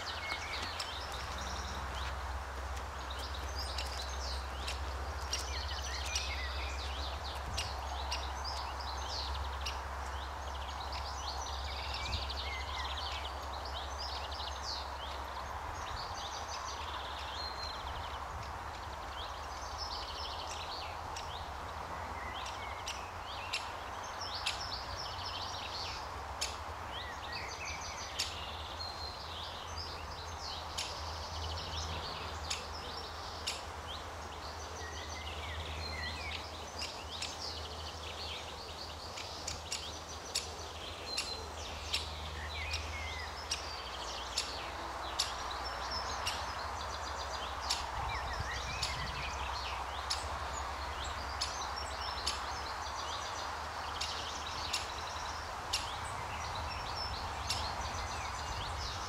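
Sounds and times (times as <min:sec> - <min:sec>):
woodpecker nestling calling: 0:00.0 - 0:02.2
songbirds singing: 0:00.0 - 0:59.0.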